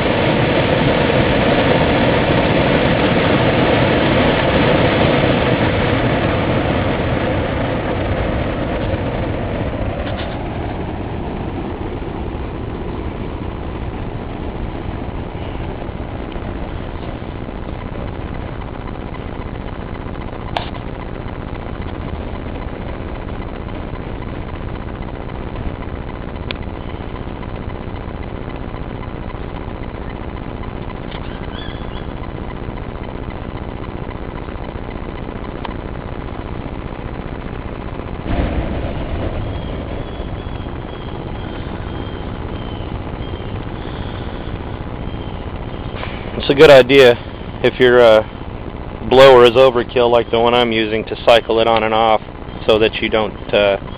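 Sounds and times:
blower forcing air into fire: 0:00.0 - 0:53.9
fire popping: 0:00.0 - 0:53.9.

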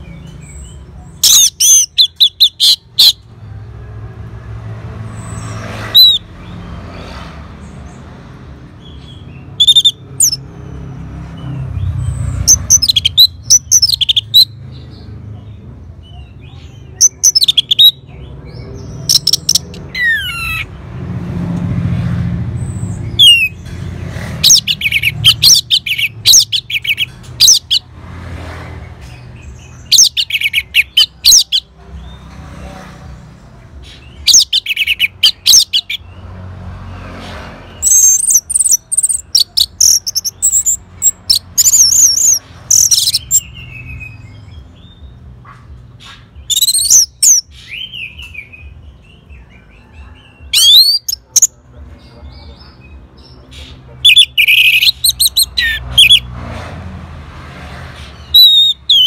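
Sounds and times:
thrush singing whistled notes: 0:08.9 - 0:10.5, 0:23.0 - 0:23.6, 0:46.4 - 0:48.7, 0:50.5 - 0:51.5, 0:54.0 - 0:56.3, 0:58.2 - 0:59.0.

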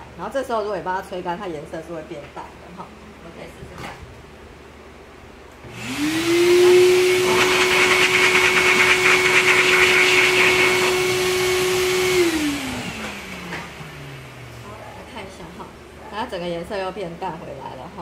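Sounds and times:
blow dryer motor whining: 0:05.6 - 0:15.8.

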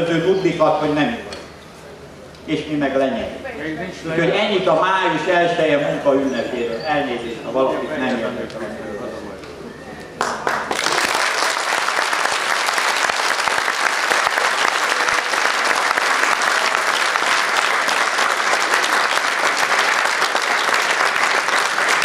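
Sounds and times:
audience applauding: 0:10.2 - 0:22.0.

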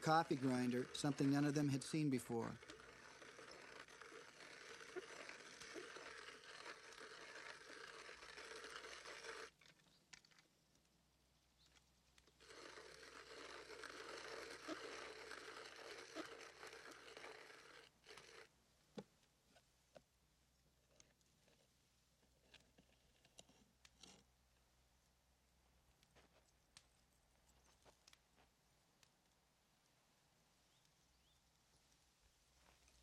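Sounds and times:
hand-cranked coffee grinder grinding: 0:00.0 - 0:10.4, 0:12.2 - 0:18.5.

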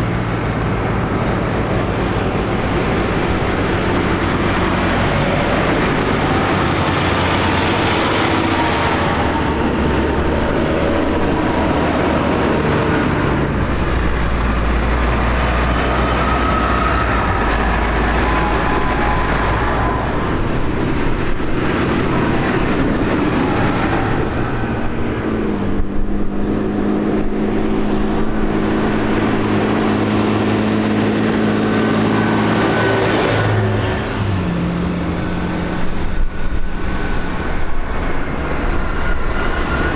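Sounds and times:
tractors driving past: 0:00.0 - 0:39.9.

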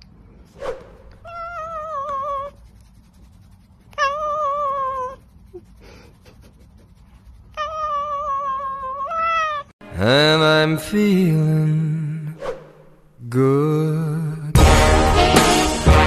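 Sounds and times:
cat meowing: 0:03.9 - 0:05.2, 0:07.5 - 0:09.7.

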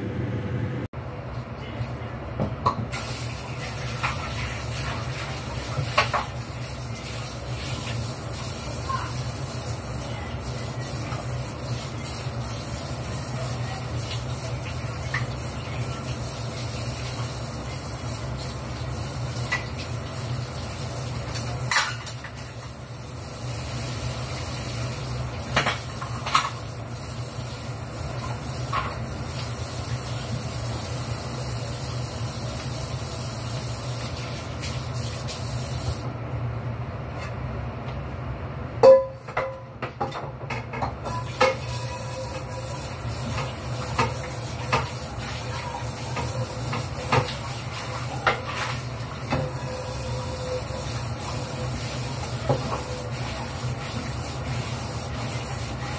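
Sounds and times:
steady low hum: 0:00.0 - 0:02.4.

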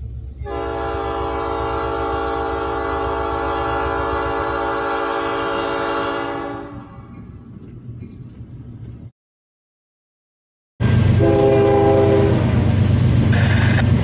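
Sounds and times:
locomotive air horn blast: 0:00.4 - 0:07.0, 0:11.1 - 0:12.7
low engine rumble: 0:10.8 - 0:14.0.

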